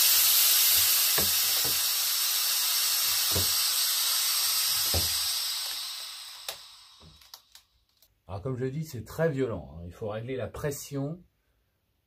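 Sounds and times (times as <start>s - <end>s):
compressed air hissing: 0.0s - 7.6s.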